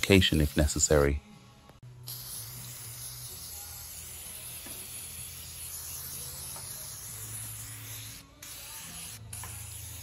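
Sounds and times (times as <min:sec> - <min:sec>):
aerosol can spraying: 0:02.0 - 0:10.0.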